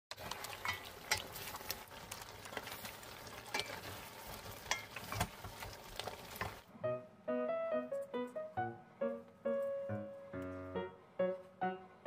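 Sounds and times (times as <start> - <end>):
spatula knocking and scraping pot: 3.5 - 6.6.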